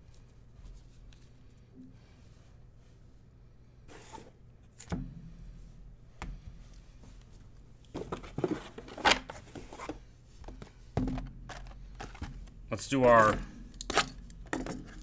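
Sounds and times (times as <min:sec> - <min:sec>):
clicks taps and rustles of cards: 0:07.9 - 0:15.0.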